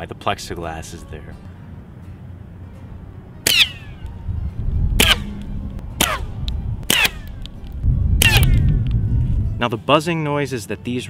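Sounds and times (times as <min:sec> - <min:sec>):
whistling buzz of flying rock: 0:03.4 - 0:09.6
rock ricocheting off pavement: 0:03.5 - 0:04.0.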